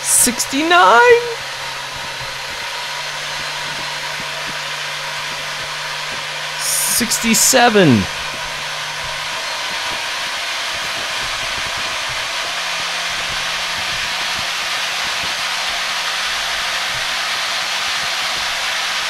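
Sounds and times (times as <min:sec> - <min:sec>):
electric motor hum: 0:01.4 - 0:06.6.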